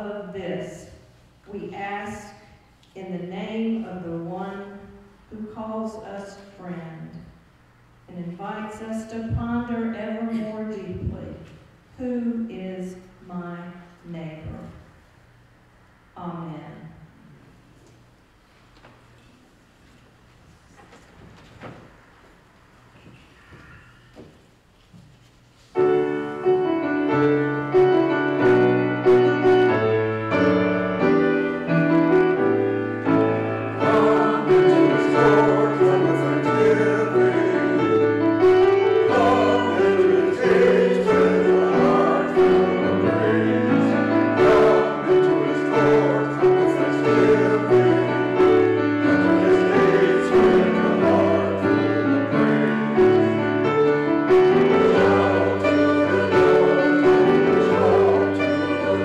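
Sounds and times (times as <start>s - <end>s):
grand piano playing: 25.7s - 59.0s
mixed choir singing: 33.1s - 59.0s.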